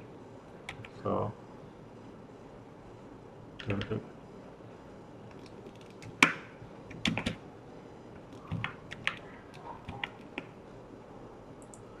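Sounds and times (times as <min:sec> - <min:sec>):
computer keyboard typing: 0:05.3 - 0:07.4, 0:08.3 - 0:10.5.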